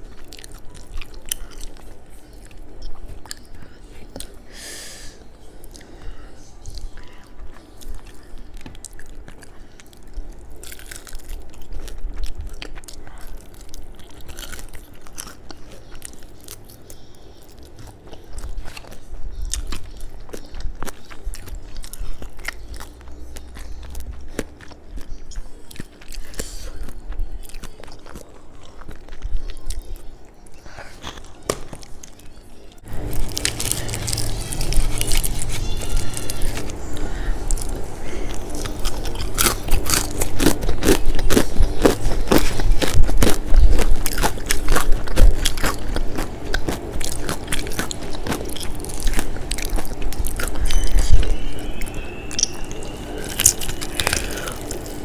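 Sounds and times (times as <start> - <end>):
person chewing crispy fried chicken: 0.0 - 55.0
fried coating crackling: 31.2 - 55.0.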